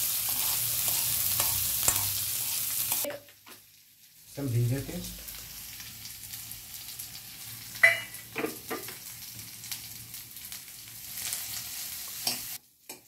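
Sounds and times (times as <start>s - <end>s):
spoon stirring in metal pan: 0.0s - 3.2s
vegetables sizzling in hot oil: 0.0s - 13.0s.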